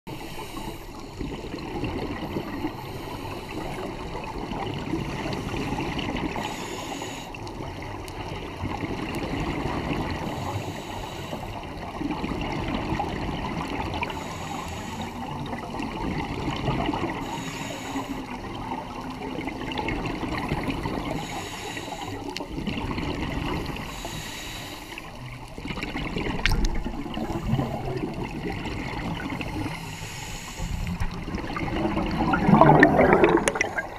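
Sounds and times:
regulator hissing breath: 0.1 - 1.6, 2.5 - 4.1, 6.3 - 7.5, 10.3 - 11.6, 14.0 - 15.4, 17.2 - 18.5, 21.0 - 22.4, 23.6 - 25.2, 29.4 - 31.1
underwater bubbling: 0.1 - 33.9.

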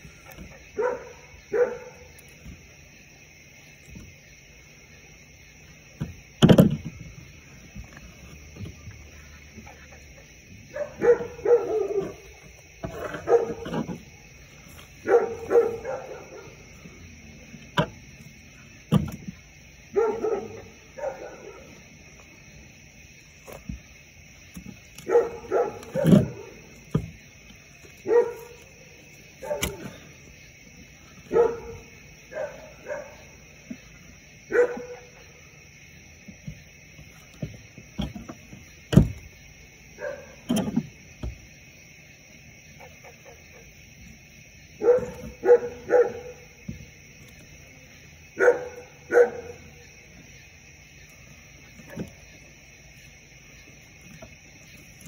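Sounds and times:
dog barking: 0.8 - 2.1, 10.7 - 12.4, 13.0 - 13.8, 15.0 - 16.7, 19.9 - 21.8, 25.0 - 26.6, 28.0 - 28.7, 29.4 - 29.9, 31.3 - 33.4, 34.5 - 35.4, 40.0 - 40.5, 44.8 - 46.6, 48.4 - 49.9.

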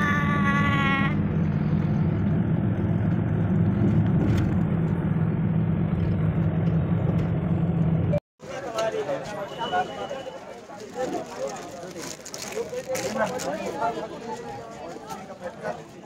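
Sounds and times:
car engine and road rumble: 0.0 - 8.2.

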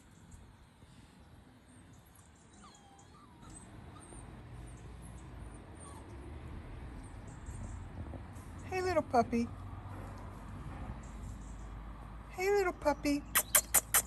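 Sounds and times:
puppy whimpering faintly: 2.4 - 4.9, 5.5 - 6.3.

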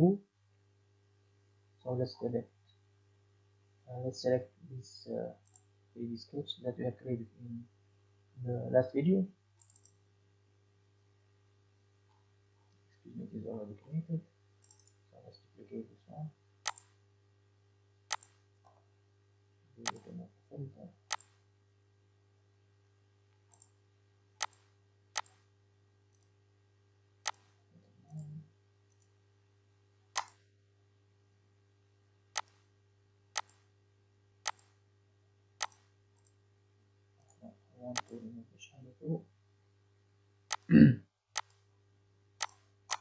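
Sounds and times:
faint low hum: 0.0 - 43.0
computer mouse clicking: 9.6 - 10.0, 14.6 - 15.0, 16.6 - 17.0, 18.1 - 18.4, 19.8 - 20.1, 21.1 - 21.4, 23.4 - 23.8, 24.4 - 25.4, 30.2 - 30.4, 32.4 - 32.6, 33.4 - 33.6, 34.5 - 34.8, 35.6 - 36.4, 38.0 - 38.2, 41.4 - 41.6, 42.4 - 43.0.

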